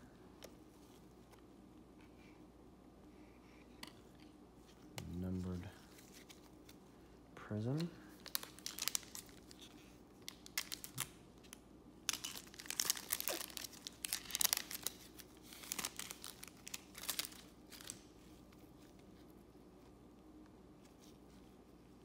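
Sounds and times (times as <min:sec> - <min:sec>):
foil wrapper tearing and crinkling: 0:08.2 - 0:11.2, 0:12.0 - 0:18.1.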